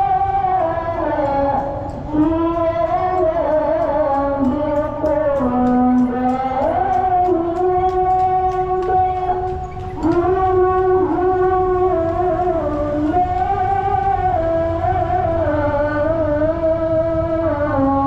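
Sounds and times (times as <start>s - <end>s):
light ticking beat: 0.0s - 12.2s
sliding melody of long notes: 0.0s - 18.0s.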